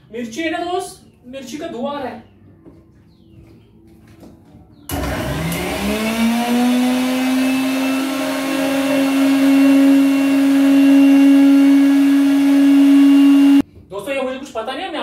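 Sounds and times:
mixer grinder motor whine: 4.9s - 13.6s.

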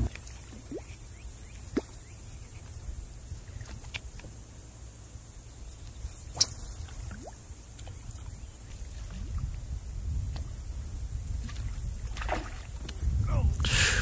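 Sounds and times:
water blips and gurgles: 0.0s - 2.7s, 6.4s - 14.0s.

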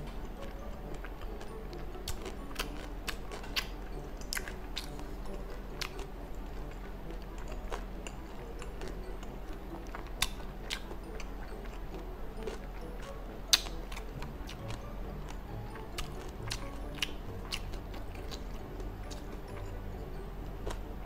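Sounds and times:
close chewing and mouth sounds: 0.0s - 21.0s.

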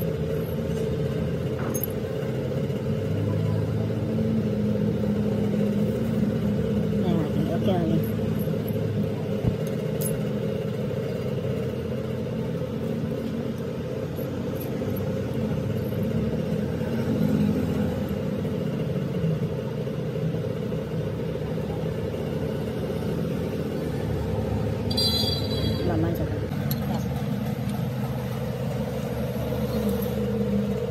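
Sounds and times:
low mechanical machine drone: 0.0s - 30.9s.

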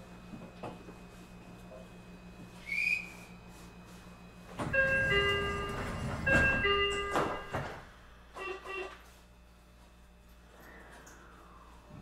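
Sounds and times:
train equipment humming: 0.0s - 12.0s.

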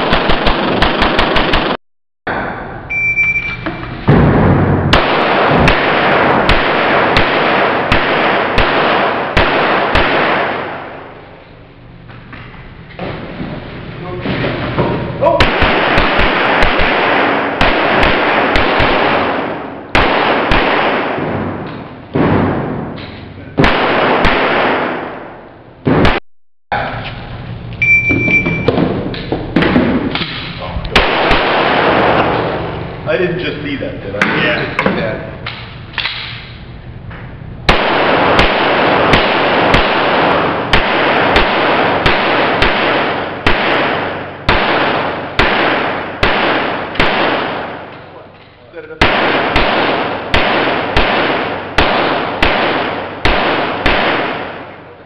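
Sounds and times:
pistol shots echoing indoors: 0.0s - 2.5s, 4.1s - 11.3s, 15.3s - 26.2s, 28.2s - 32.8s, 37.7s - 48.0s, 49.0s - 55.0s.

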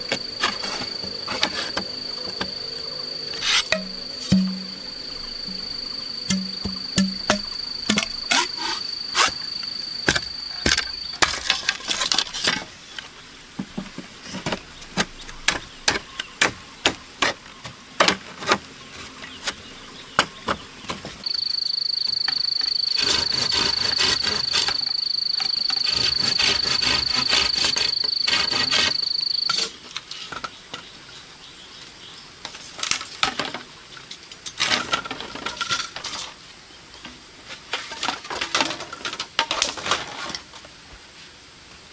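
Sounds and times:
high-pitched insect buzz: 0.0s - 11.5s, 21.2s - 29.8s.

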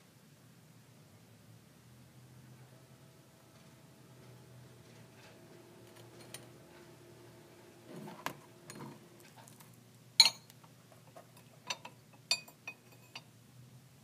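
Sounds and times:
glass tubes clinking: 10.2s - 10.6s, 11.3s - 13.3s.

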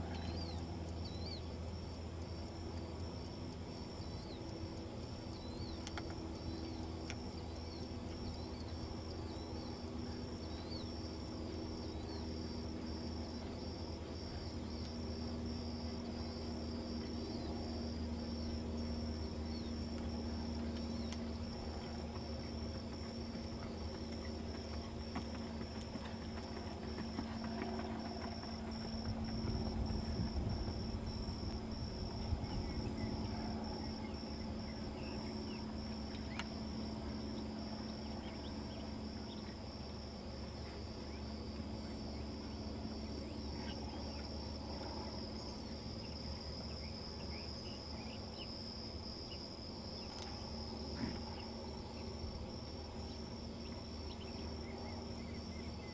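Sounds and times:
insects trilling: 0.0s - 55.9s
low steady hum: 0.0s - 55.9s.

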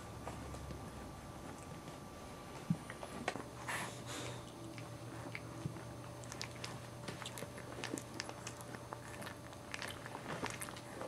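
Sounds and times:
low steady hum: 0.0s - 11.0s
puppies licking wet smacks: 4.4s - 11.0s.

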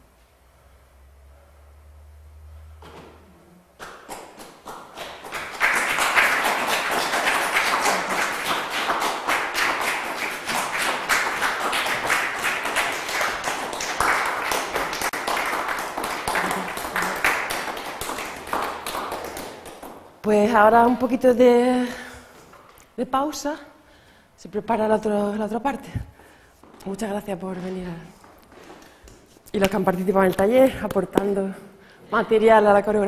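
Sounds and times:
audience applauding: 3.8s - 20.0s.

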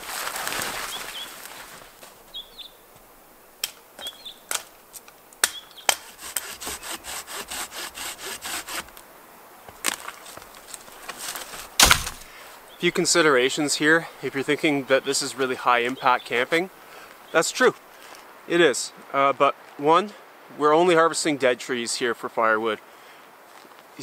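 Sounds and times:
hand saw cutting wood: 5.9s - 9.0s
wood knocking: 11.2s - 12.3s.

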